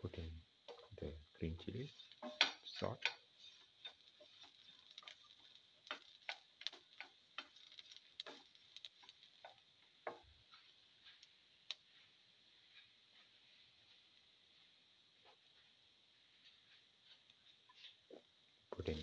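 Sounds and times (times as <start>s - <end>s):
spatula tapping frying pan: 1.9s - 12.0s.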